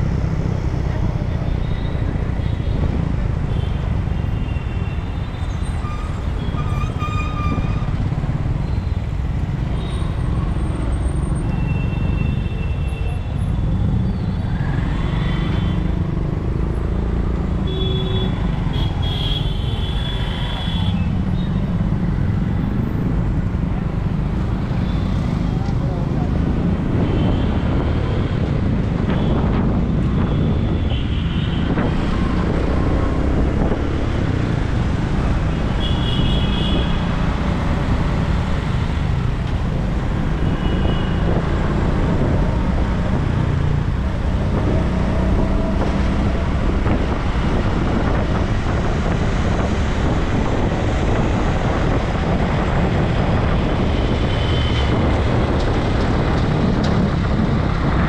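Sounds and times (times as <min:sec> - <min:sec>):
road traffic noise: 0:00.0 - 0:58.0
wind buffeting microphone: 0:31.6 - 0:58.0.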